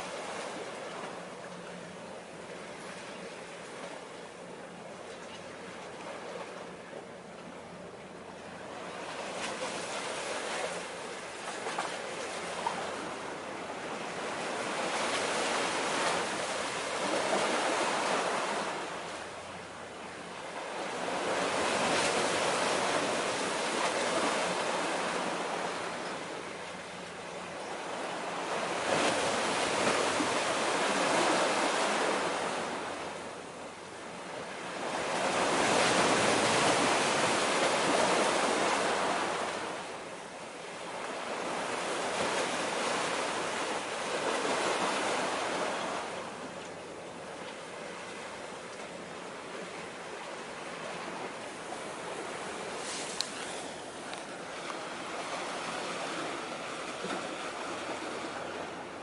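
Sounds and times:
waves washing against shore: 48.0s - 59.0s.

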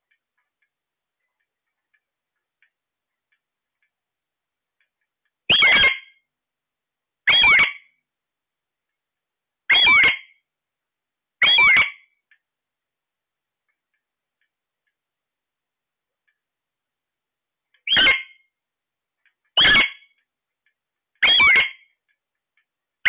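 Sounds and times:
parakeet squawking shrilly: 5.5s - 6.1s, 7.3s - 7.9s, 9.7s - 10.4s, 11.4s - 12.1s, 17.8s - 18.4s, 19.6s - 20.1s, 21.2s - 21.9s.

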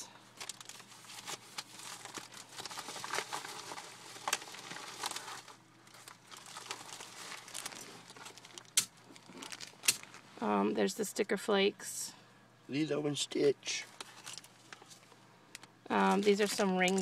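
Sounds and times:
plastic bag crinkling: 0.4s - 10.3s, 16.0s - 17.0s.

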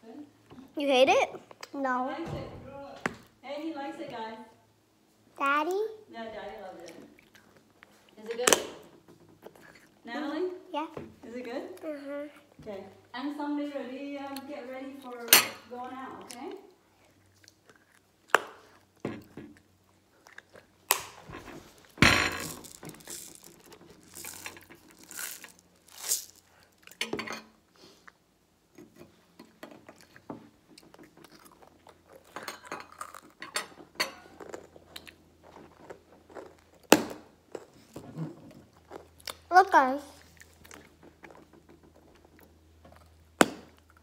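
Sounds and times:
chewing: 6.8s - 8.2s, 9.4s - 10.0s, 16.2s - 20.9s, 29.7s - 33.4s, 34.2s - 36.9s, 37.5s - 39.5s, 40.1s - 44.0s.

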